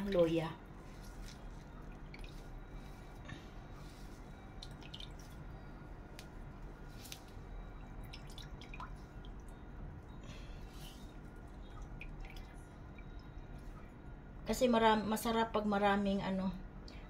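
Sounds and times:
wet cloth squishing: 0:00.0 - 0:09.4
liquid dripping into metal bowl: 0:04.5 - 0:05.5, 0:07.0 - 0:10.1, 0:11.4 - 0:13.6.

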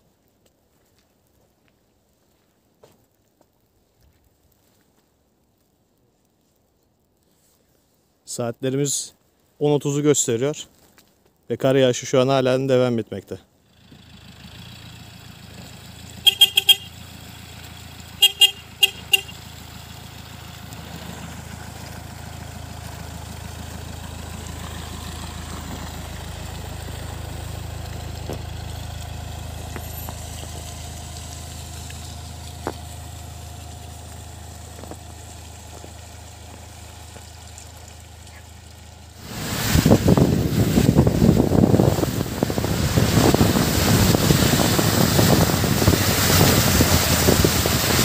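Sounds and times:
minibus engine passing by: 0:13.7 - 0:48.0
minibus horn tooting: 0:16.1 - 0:17.2, 0:18.1 - 0:19.6.

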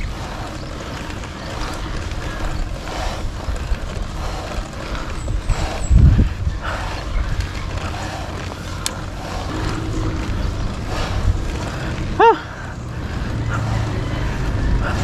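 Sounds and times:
bicycle road noise: 0:00.0 - 0:15.0
wind rumble on microphone: 0:00.0 - 0:15.0.

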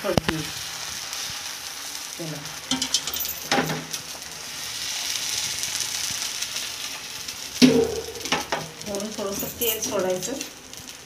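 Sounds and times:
batter sizzling in a pan: 0:00.0 - 0:11.0.

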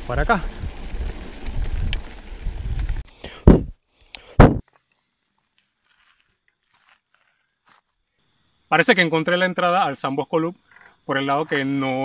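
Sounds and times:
bike rolling over dirt road: 0:00.0 - 0:03.1
loud thumps: 0:04.4 - 0:04.6.

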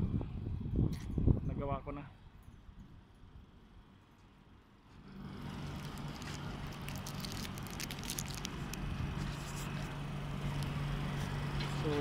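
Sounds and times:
vehicle engine idling: 0:03.0 - 0:12.0.

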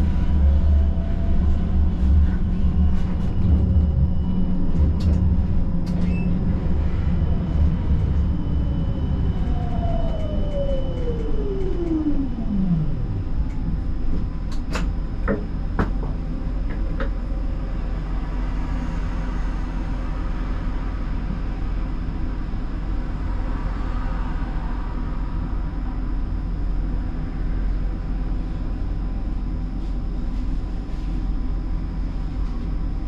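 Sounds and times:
electric drive whine: 0:00.0 - 0:18.4
tram wheels rumbling on rail: 0:00.0 - 0:26.0.

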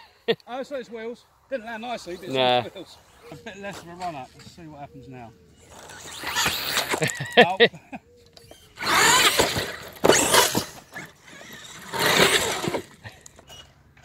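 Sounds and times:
electric motor whining: 0:05.5 - 0:07.3, 0:08.4 - 0:13.0.

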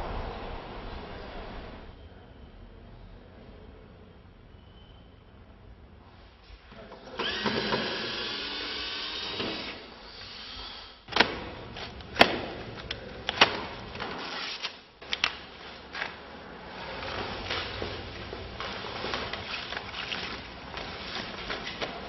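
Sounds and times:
plastic wrap and tape rustling: 0:11.2 - 0:22.0.

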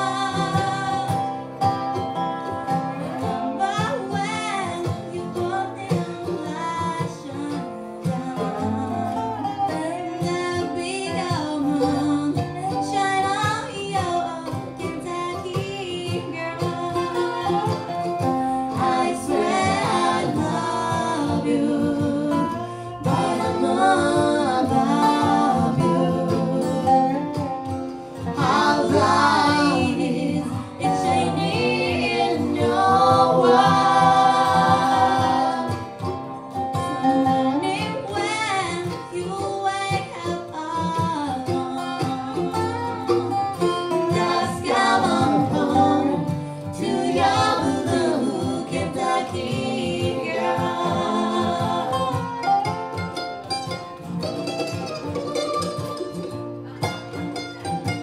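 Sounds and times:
person singing: 0:00.0 - 0:27.6, 0:28.2 - 0:52.9
acoustic guitar: 0:00.0 - 0:58.0
mandolin: 0:00.0 - 0:58.0
resonator guitar: 0:00.0 - 0:58.0.

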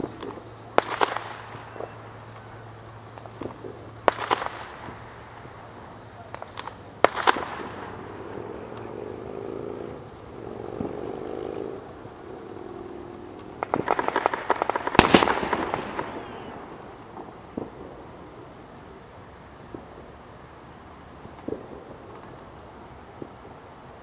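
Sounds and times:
rapid string of cracks: 0:00.0 - 0:02.5, 0:03.1 - 0:05.5, 0:06.2 - 0:18.0
small firework pop: 0:00.0 - 0:02.5, 0:03.1 - 0:05.0, 0:06.2 - 0:08.0, 0:21.2 - 0:22.4
fireworks bangs: 0:00.0 - 0:24.0
fireworks crackling: 0:00.0 - 0:24.0.

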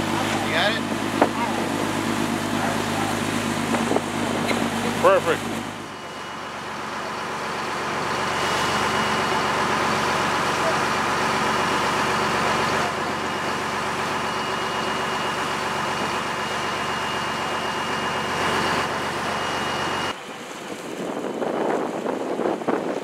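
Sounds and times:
boat engine droning: 0:00.0 - 0:23.0
rush of boat wake: 0:00.0 - 0:23.0
wind buffeting microphone: 0:20.2 - 0:23.0.

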